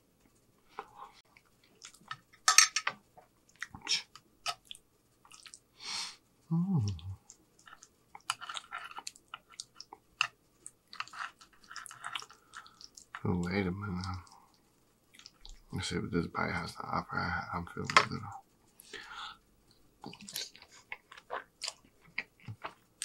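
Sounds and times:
chewing and wet mouth sounds: 0.7s - 2.3s, 3.5s - 5.7s, 6.8s - 15.7s, 19.7s - 23.0s
person humming: 6.5s - 7.2s.

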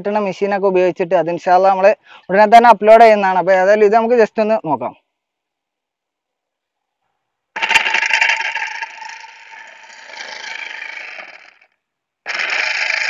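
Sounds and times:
electric motor whirring hum: 7.6s - 11.6s, 12.3s - 13.0s.

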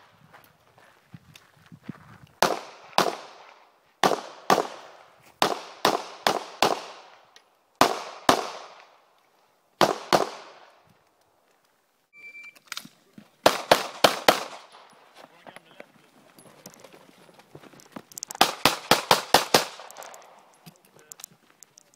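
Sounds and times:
pistol shots echoing: 2.4s - 9.0s, 9.8s - 10.7s, 13.4s - 15.0s, 18.4s - 20.5s.

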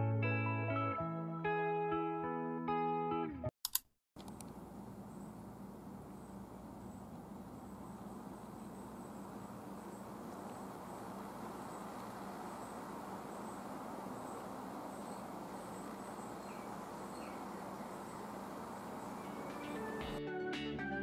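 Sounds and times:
outdoor background noise: 4.2s - 20.2s.

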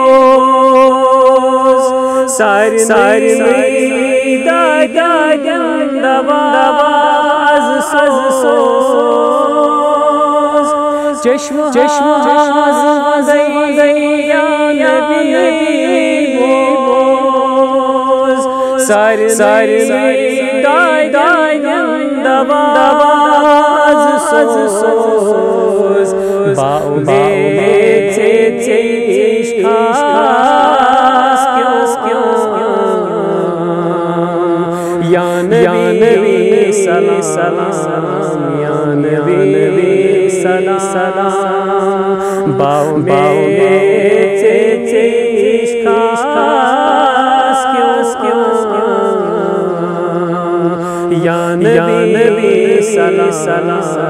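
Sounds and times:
man singing devotional song: 0.0s - 54.0s.

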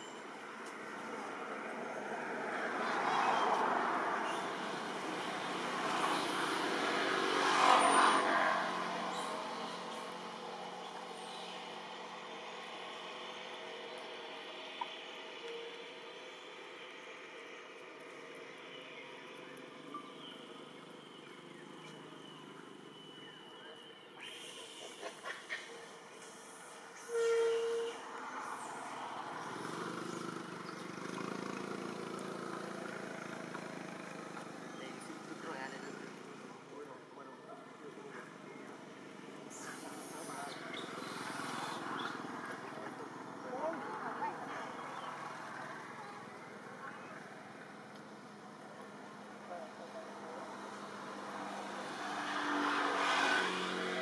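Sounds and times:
vehicle engine hum: 28.3s - 36.8s.

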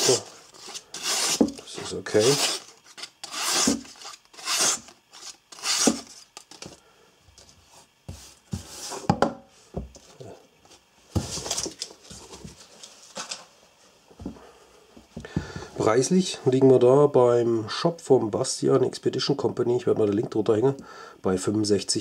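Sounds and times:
knife slicing paper: 2.2s - 6.2s.

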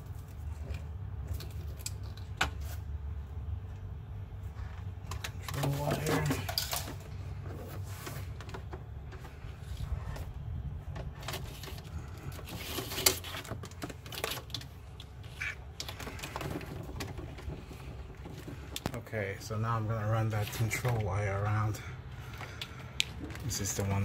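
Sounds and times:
plastic cable loom rattling: 15.8s - 19.0s.

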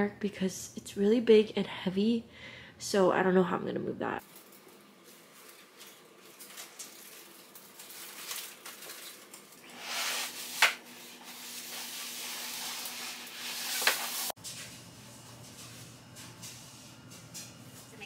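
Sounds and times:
low steady hum: 14.4s - 18.0s.

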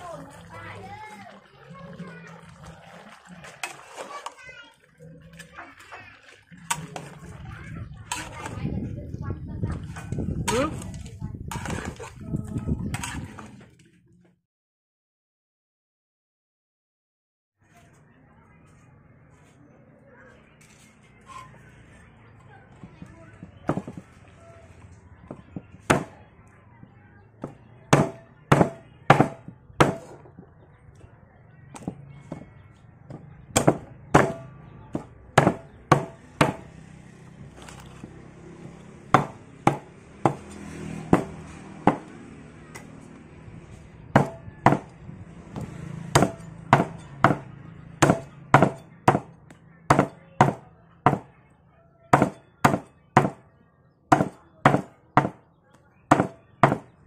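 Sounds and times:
cleaver chopping on wooden block: 27.4s - 30.2s, 33.6s - 34.4s, 35.0s - 36.7s, 39.2s - 40.5s, 41.1s - 42.1s, 44.2s - 44.9s, 46.2s - 49.3s, 49.9s - 51.3s, 52.2s - 53.4s, 54.1s - 55.4s, 56.1s - 56.9s.

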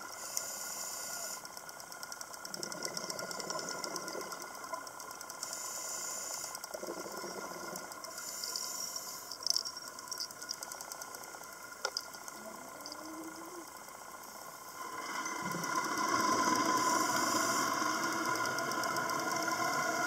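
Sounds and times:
underwater hiss: 0.0s - 1.6s, 5.4s - 9.5s, 13.1s - 20.0s
sharp clicks and crackles: 0.0s - 20.0s.

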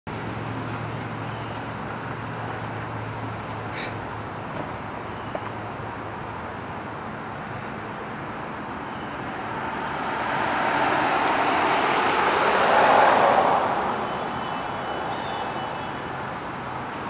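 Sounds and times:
vehicle passing: 7.0s - 16.9s.

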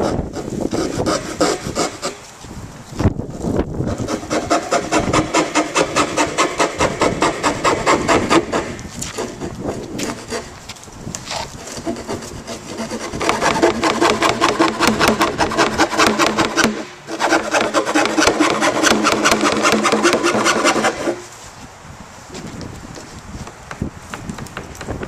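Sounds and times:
saw cutting plastic barrel: 0.0s - 2.2s, 3.9s - 10.6s, 11.3s - 21.3s.

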